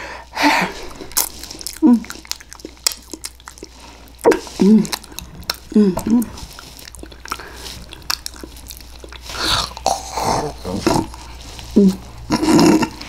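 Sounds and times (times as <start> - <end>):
wet chewing and lip-smacking: 0.7 - 13.0
throaty vocal noises: 9.2 - 13.0.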